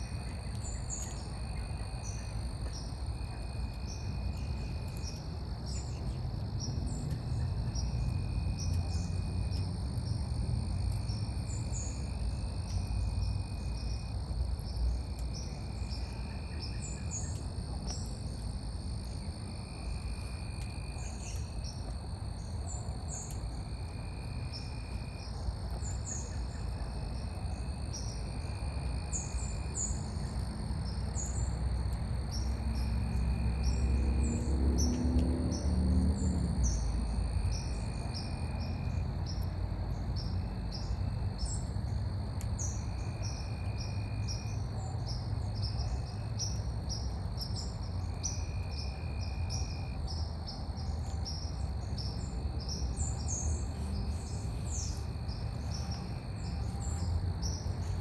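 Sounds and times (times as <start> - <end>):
high insect drone: 0.0 - 58.0.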